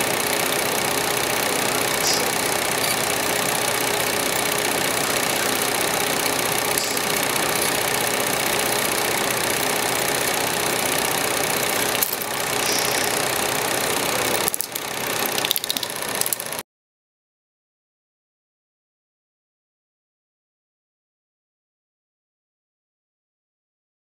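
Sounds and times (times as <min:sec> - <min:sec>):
mechanical running noise: 0:00.0 - 0:16.6.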